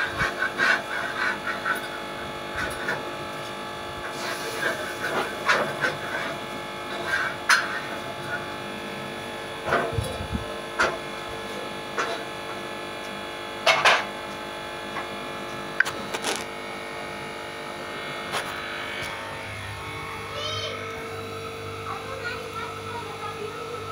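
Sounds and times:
steady hum: 0:00.0 - 0:23.9.

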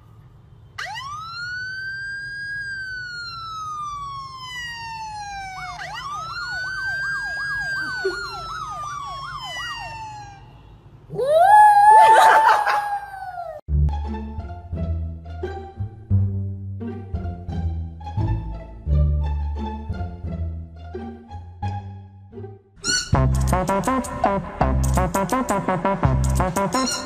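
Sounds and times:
fast warbling siren tone: 0:00.8 - 0:13.6, 0:26.6 - 0:27.0
siren wailing: 0:00.8 - 0:13.6.

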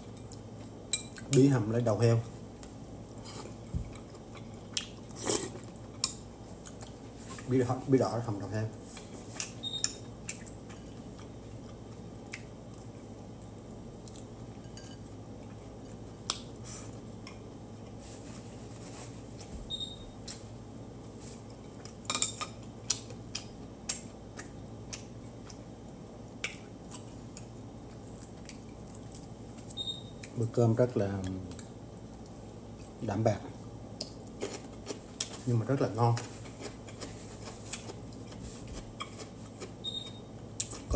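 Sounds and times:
low room hum: 0:00.0 - 0:40.9
chewing: 0:03.2 - 0:07.5, 0:36.2 - 0:40.0.

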